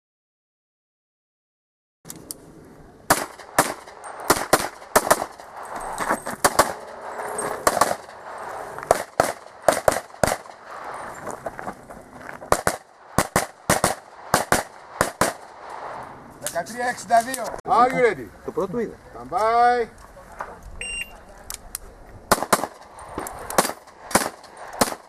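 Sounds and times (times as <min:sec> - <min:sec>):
pistol shots: 0:03.1 - 0:05.5, 0:06.4 - 0:08.2, 0:08.9 - 0:10.7, 0:12.5 - 0:15.7, 0:22.3 - 0:22.9, 0:23.5 - 0:25.0.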